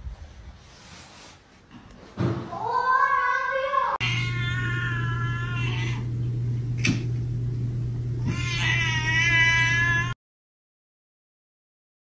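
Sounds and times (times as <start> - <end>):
cat yowling meows: 3.9 - 6.1, 8.2 - 10.2.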